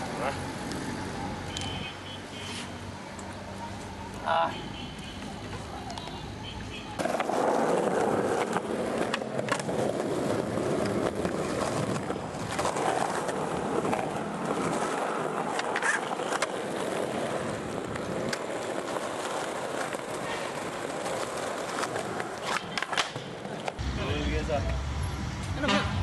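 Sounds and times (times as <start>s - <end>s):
skateboard wheels rolling on concrete: 0.0s - 26.0s
skateboard clicks and knocks: 4.9s - 23.8s.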